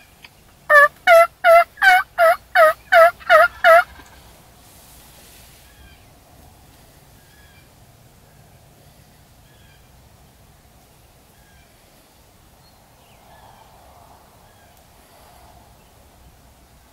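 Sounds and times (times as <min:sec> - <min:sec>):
faint distant turkey calls: 0:00.0 - 0:10.1, 0:10.8 - 0:12.3
wild turkey yelping: 0:00.7 - 0:04.3.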